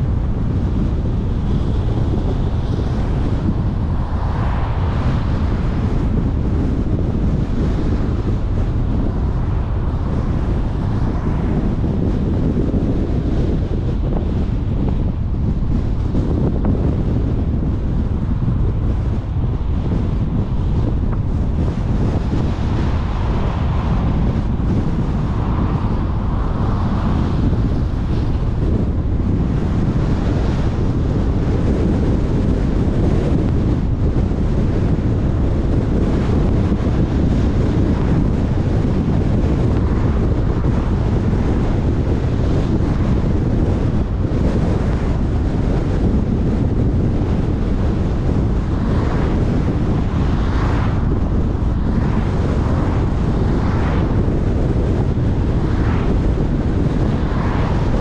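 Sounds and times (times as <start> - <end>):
low road rumble: 0.0 - 58.0
wind rushing over microphone: 0.0 - 58.0
passing cars whooshing: 0.9 - 16.4, 17.1 - 31.5, 47.5 - 58.0.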